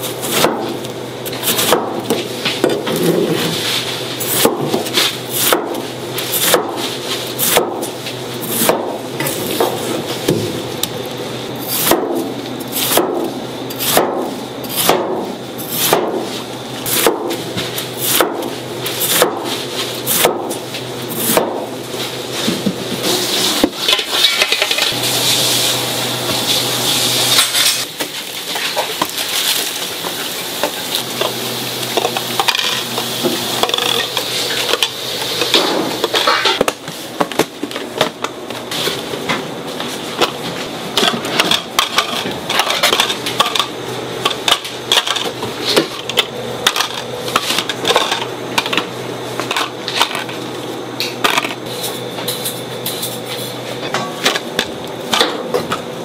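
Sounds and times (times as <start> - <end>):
rustling scraping noise: 2.9 - 4.2
knife chopping on cutting board: 12.8 - 16.2, 16.9 - 17.4, 19.1 - 19.5.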